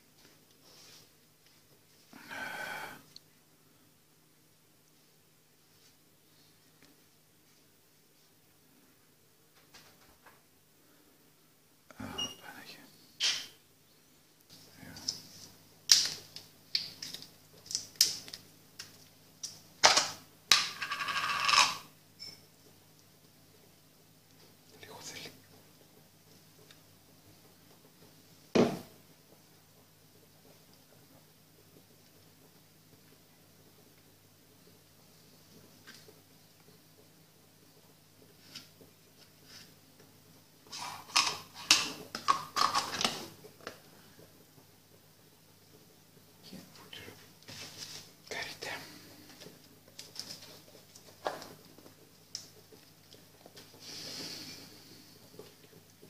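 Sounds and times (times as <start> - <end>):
spoon and plastic containers clattering: 40.7 - 43.3.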